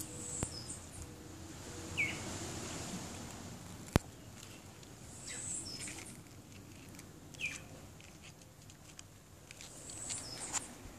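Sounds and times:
high bird chirps: 0.0 - 1.0, 5.2 - 6.1.

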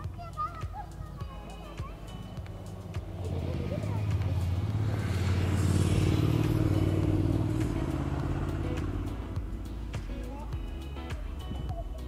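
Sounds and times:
vehicle engine passing by: 0.9 - 10.5.

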